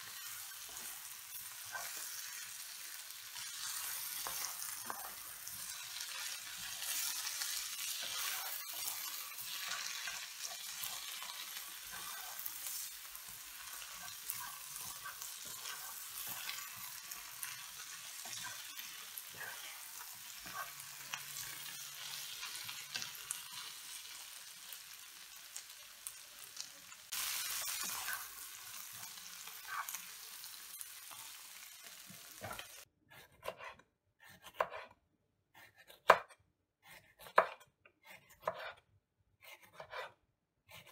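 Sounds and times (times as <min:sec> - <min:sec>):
onions sizzling in a frying pan: 0:00.0 - 0:32.8
knife slicing on a cutting board: 0:32.4 - 0:35.0, 0:35.6 - 0:38.8, 0:39.4 - 0:40.9.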